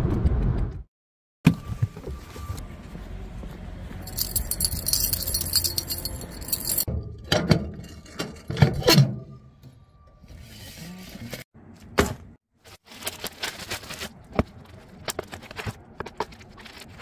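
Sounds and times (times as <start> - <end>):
keys jangling: 4.0 - 6.9.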